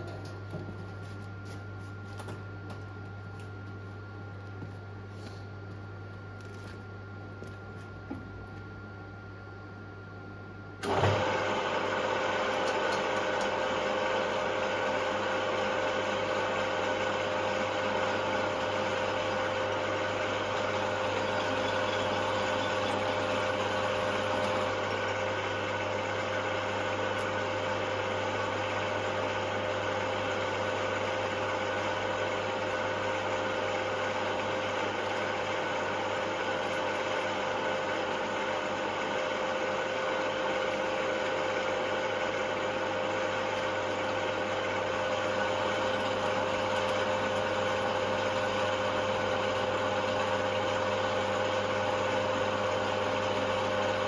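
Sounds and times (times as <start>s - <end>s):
drill whining and humming: 10.8s - 54.0s.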